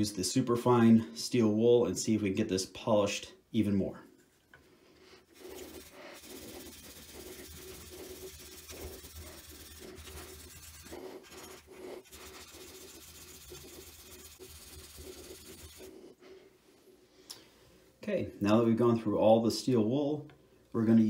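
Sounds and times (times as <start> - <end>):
steel wool scratchy rubbing: 5.2 - 16.4.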